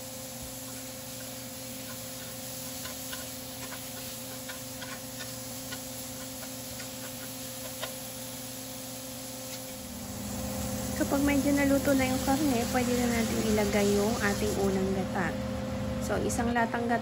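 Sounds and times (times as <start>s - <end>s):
food sauteing in oil: 0.0s - 15.0s
steady hum: 0.0s - 17.0s
spatula scraping frying pan: 0.7s - 8.0s.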